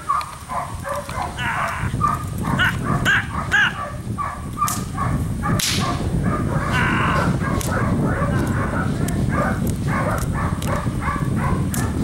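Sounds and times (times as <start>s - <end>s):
short vocal calls: 1.3s - 3.8s, 6.7s - 7.4s
whip cracking: 4.6s - 4.9s, 5.6s - 6.0s, 11.7s - 11.9s.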